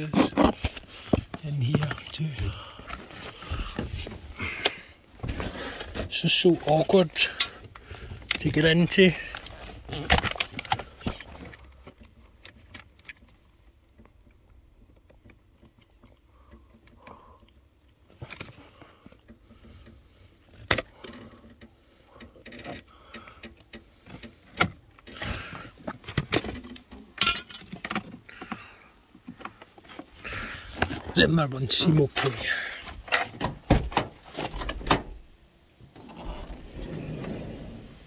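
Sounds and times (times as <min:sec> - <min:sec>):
clicks taps and rattles: 0:06.9 - 0:31.2.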